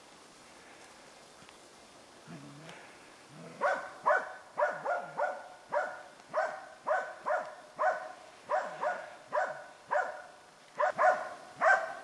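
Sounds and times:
dog barking: 3.5 - 12.0.

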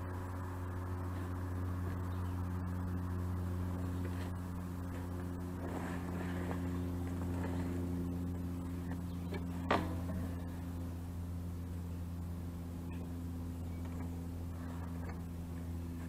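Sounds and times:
low mechanical hum: 0.0 - 16.0
tank scraping: 3.8 - 10.6.

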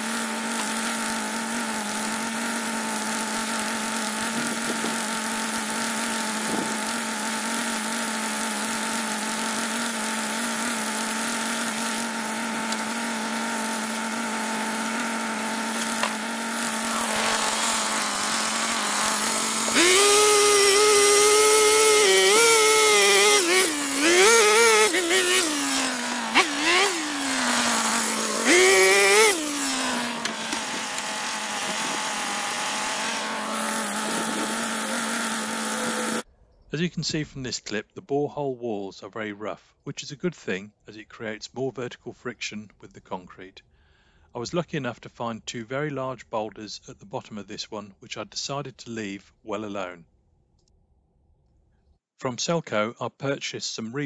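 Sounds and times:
earth auger engine revving: 0.0 - 36.3.

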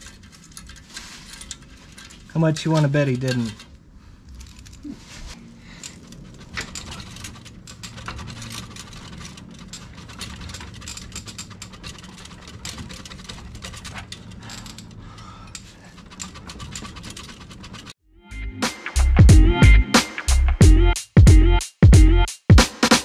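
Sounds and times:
metal clicking and rattling: 0.0 - 18.0.

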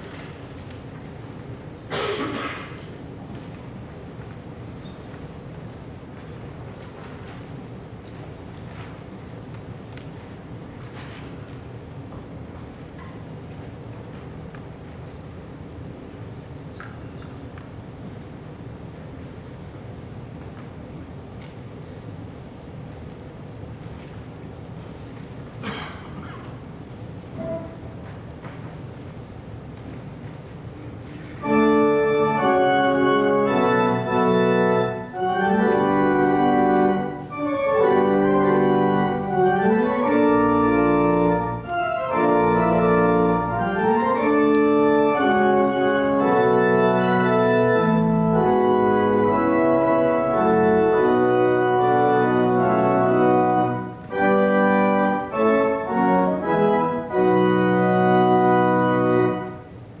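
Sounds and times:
pipe organ chords: 31.4 - 59.7.

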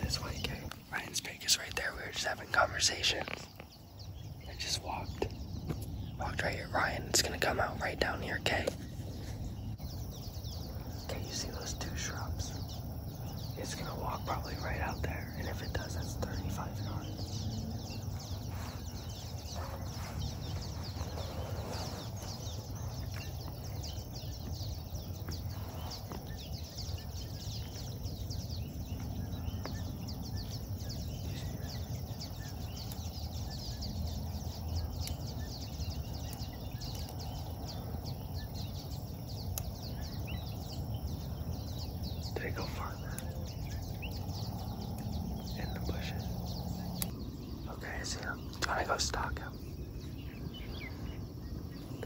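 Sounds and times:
faint high ticks and chirps: 0.0 - 52.0
steady low rumble: 0.0 - 52.0.

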